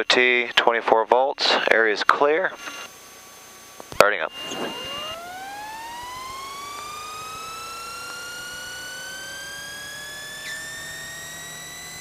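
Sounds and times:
turbine engine spooling up: 4.1s - 12.0s.

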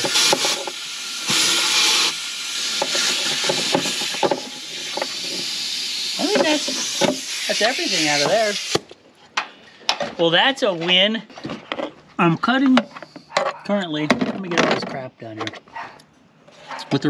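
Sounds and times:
compressed air hissing from nozzle: 0.0s - 8.8s.

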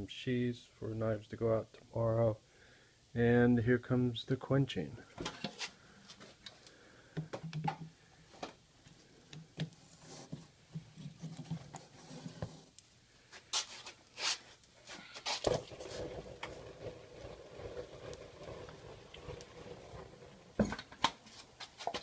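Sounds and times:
hot metal quenched in oil: 15.3s - 20.9s.

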